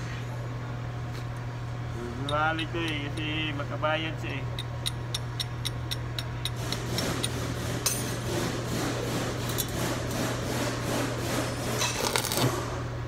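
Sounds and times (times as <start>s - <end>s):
steady low hum: 0.0s - 13.0s
hand ratchet clicking: 4.2s - 8.0s.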